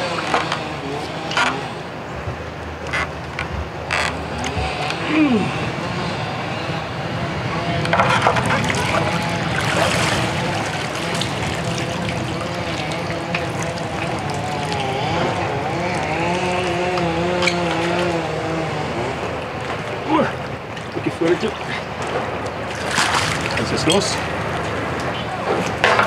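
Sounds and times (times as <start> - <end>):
low engine hum: 0.0 - 26.0
water splashing and trickling: 7.6 - 25.9.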